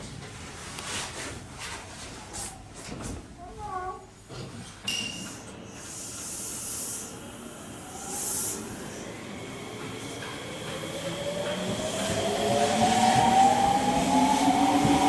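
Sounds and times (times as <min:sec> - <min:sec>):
compressed-air hiss: 0:05.8 - 0:09.0.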